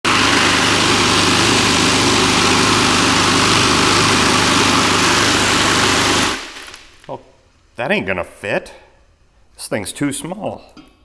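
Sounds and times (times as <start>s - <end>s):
electric motor hum: 0.0s - 6.8s.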